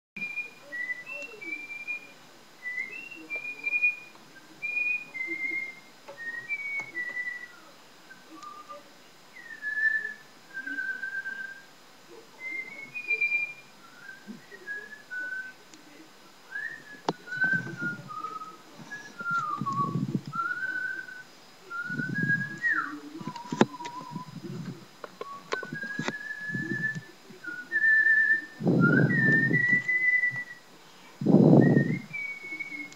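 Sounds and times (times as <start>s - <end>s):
woman whistling a melody: 0.2s - 7.7s, 16.5s - 24.4s, 25.2s - 30.6s, 31.6s - 32.9s
muffled low noises: 0.2s - 32.9s.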